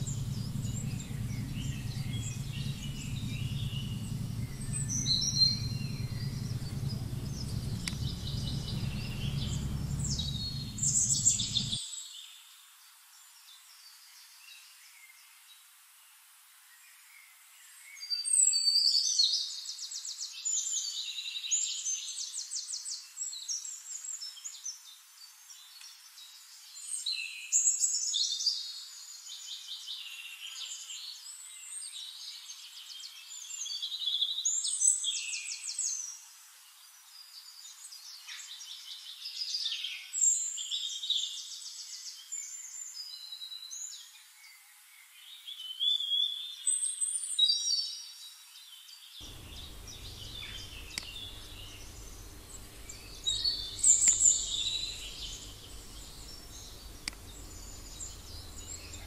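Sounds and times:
songbirds trilling and chirping: 0.0 - 11.8, 49.2 - 59.0.

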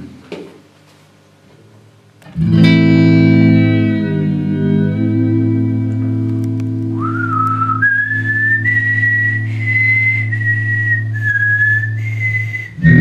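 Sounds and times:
electric guitar chord: 2.2 - 7.8
man whistling slow melody: 6.9 - 13.0.

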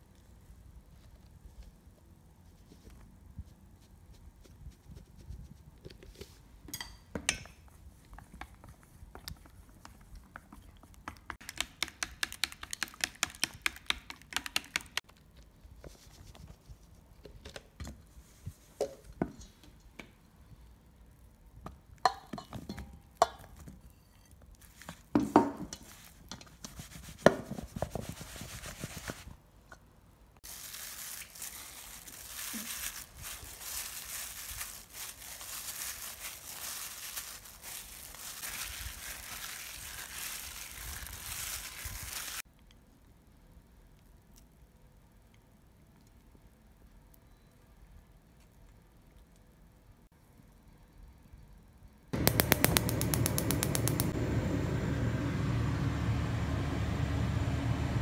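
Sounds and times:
gloved hand rustling: 30.4 - 42.4.

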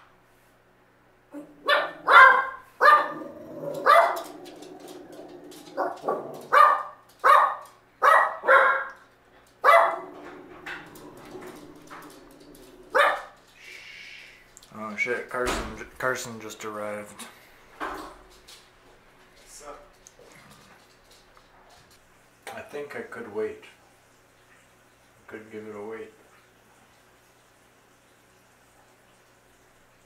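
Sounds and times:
dog barking: 1.3 - 4.6, 5.7 - 9.0, 9.6 - 10.4, 12.9 - 13.4.

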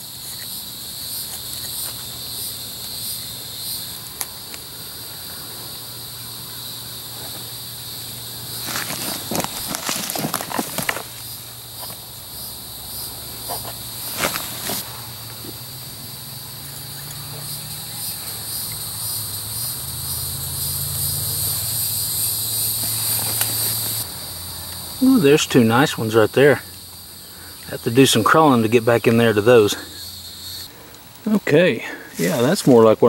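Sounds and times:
insect chorus buzzing: 0.0 - 33.0
footsteps crunching dry leaves: 8.5 - 11.6, 14.0 - 14.8.

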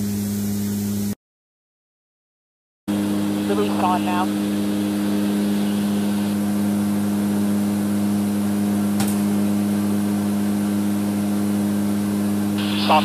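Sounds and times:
turboprop engines droning: 2.9 - 13.0.

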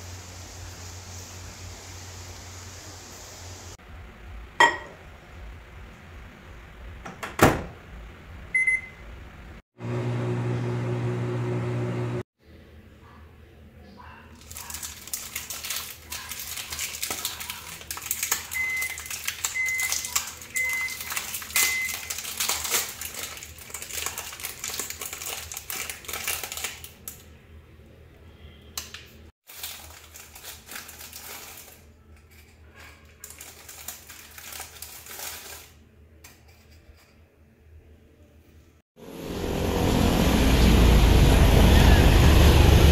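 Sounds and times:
foil packet crinkling: 14.4 - 27.3, 29.4 - 31.9, 32.8 - 35.8.

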